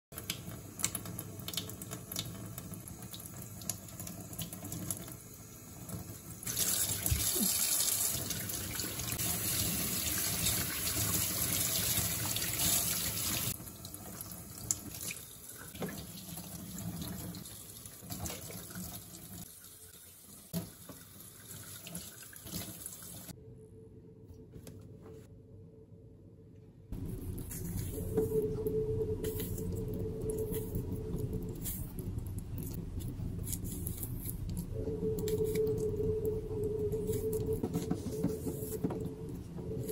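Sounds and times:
mushrooms rinsed by hand: 0.2 - 23.3.

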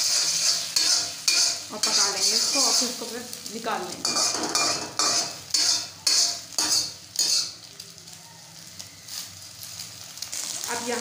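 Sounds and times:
metal spatula scraping a wok: 0.0 - 3.2, 3.9 - 7.6
eggs sizzling in oil: 0.0 - 11.0.

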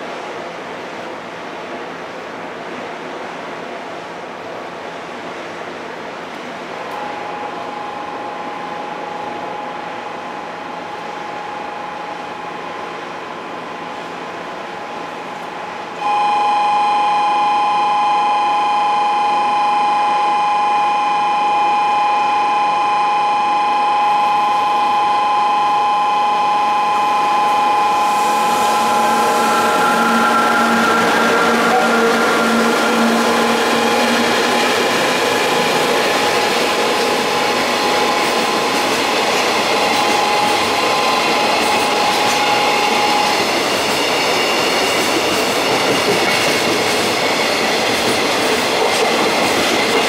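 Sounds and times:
freight train passing: 0.0 - 50.0
two-note electronic warning tone: 7.0 - 15.2, 16.0 - 43.5.

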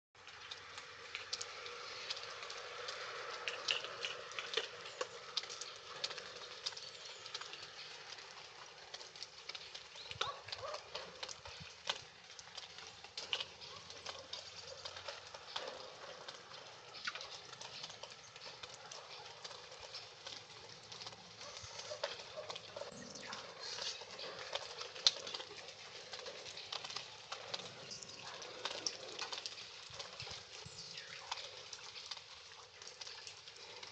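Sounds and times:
water drops pattering: 0.2 - 33.9.

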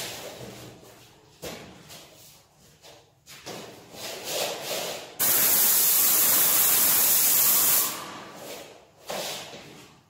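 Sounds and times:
paint sprayer hissing: 5.2 - 8.2.

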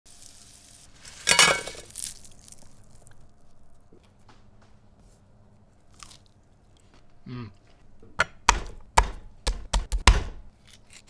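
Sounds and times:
salt pattering on metal tray: 0.1 - 3.3.

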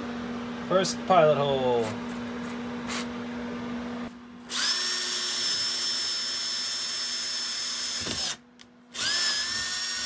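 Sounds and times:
power drill whining: 4.5 - 10.0.

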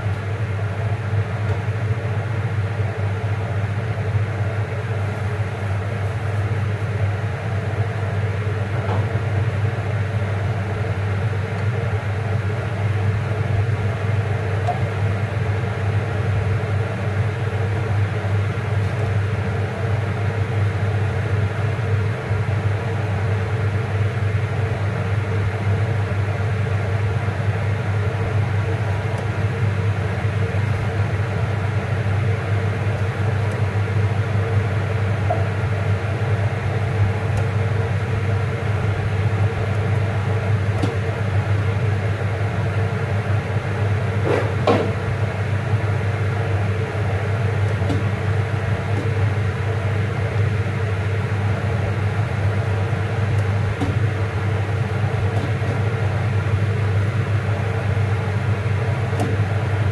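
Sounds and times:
low mechanical hum: 0.0 - 59.9.

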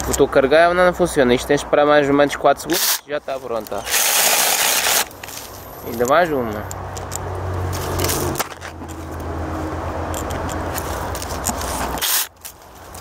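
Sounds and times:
electric chainsaw cutting branch: 3.8 - 5.2, 12.0 - 12.3.

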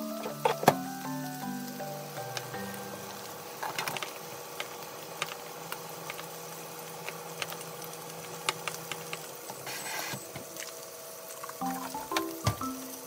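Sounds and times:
steak sizzling in a pan: 0.0 - 13.0.

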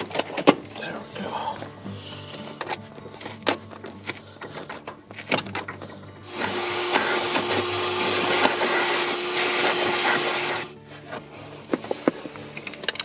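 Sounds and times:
handling clicks and knocks: 0.0 - 0.8, 2.4 - 8.7, 11.1 - 13.0
vacuum cleaner humming: 6.2 - 10.8.

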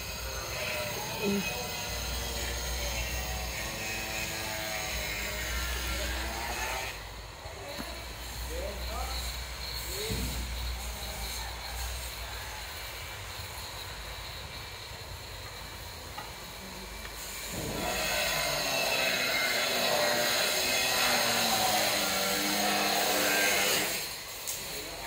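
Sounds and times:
construction work sounds: 0.0 - 25.0
steady hiss: 5.0 - 25.0.

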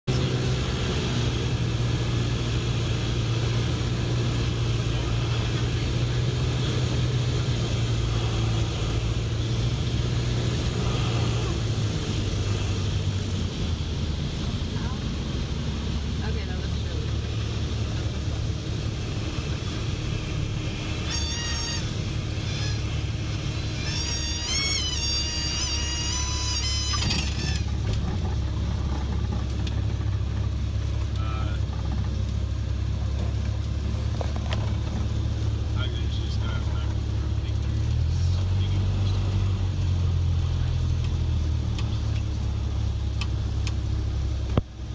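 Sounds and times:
airplane engine droning: 0.1 - 38.0
stall warning horn: 20.8 - 27.9.

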